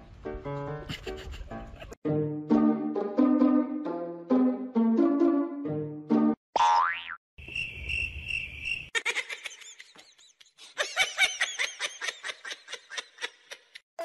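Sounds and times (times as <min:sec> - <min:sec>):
cricket chirping: 0:07.4 - 0:08.9.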